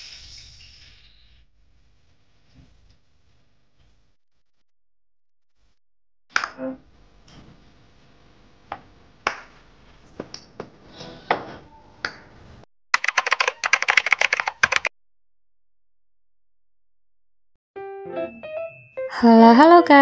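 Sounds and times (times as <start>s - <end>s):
fast run of sharp clicks: 13.0s - 14.9s.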